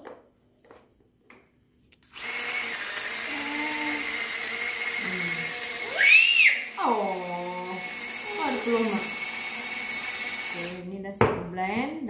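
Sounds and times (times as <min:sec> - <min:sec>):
electric blender whining: 0:02.0 - 0:10.8
child's high-pitched call: 0:05.8 - 0:07.2.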